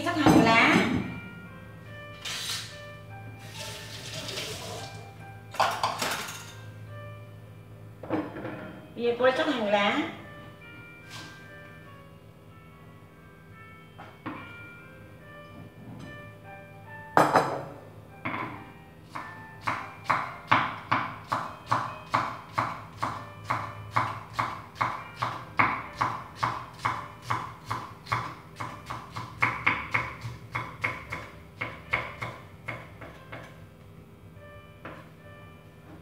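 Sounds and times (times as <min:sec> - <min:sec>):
knife chopping on wooden board: 0:19.2 - 0:33.6.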